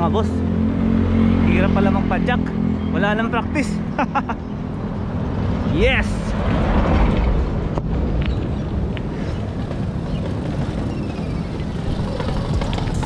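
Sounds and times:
wind buffeting microphone: 5.1 - 13.0.

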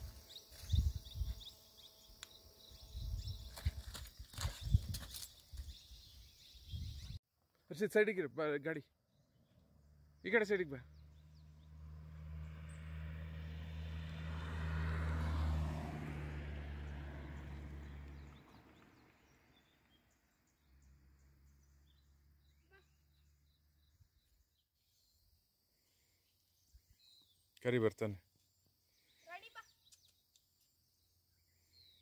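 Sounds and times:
vehicle passing on road: 10.8 - 22.5.

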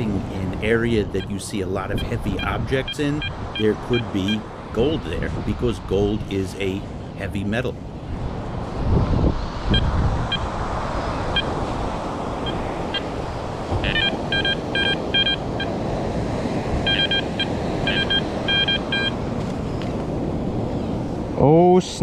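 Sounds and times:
wind and surf: 0.0 - 22.0
metal detector beeps: 13.8 - 15.7, 16.8 - 19.2.

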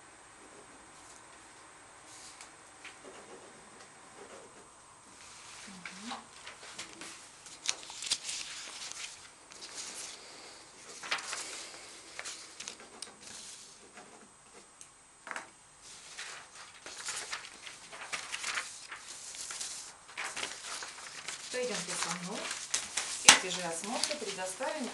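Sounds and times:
paper rustling and shuffling: 4.2 - 14.7, 15.8 - 24.9.

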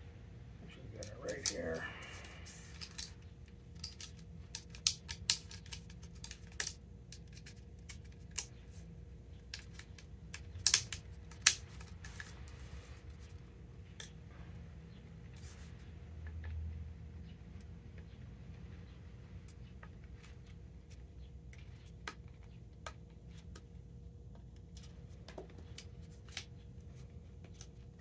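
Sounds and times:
plastic clicks and snaps: 9.5 - 12.3.

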